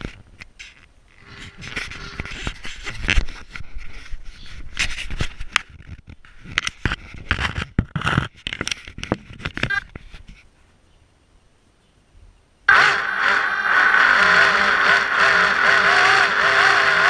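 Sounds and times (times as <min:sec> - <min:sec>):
camera scraping and knocking on hull: 0:00.0 - 0:10.5.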